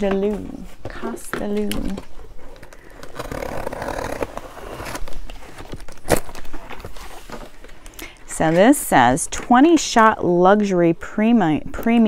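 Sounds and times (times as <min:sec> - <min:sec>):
cardboard packaging scraping and rustling: 0:02.0 - 0:07.8.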